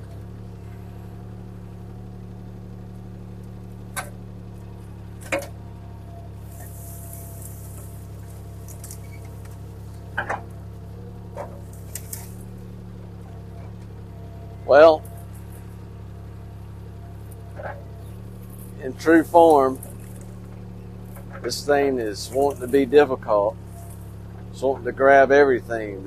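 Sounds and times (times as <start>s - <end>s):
excavator diesel engine running: 0.0s - 26.0s
branches cracking: 6.5s - 10.6s, 11.2s - 14.0s, 16.6s - 21.7s.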